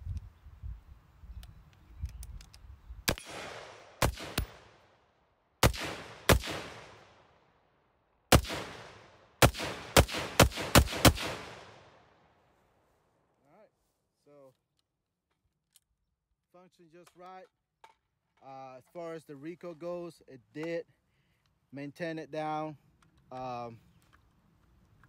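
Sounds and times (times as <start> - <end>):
rifle shots with echo: 3.1 - 5.0, 5.6 - 7.5, 8.3 - 12.4.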